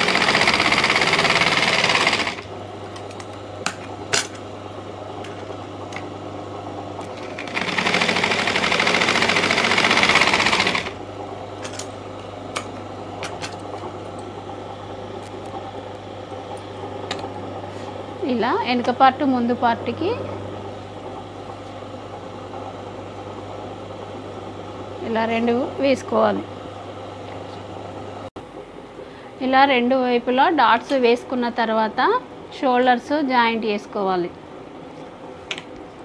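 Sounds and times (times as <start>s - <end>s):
sewing machine stitching: 0.0s - 2.5s, 7.1s - 11.0s.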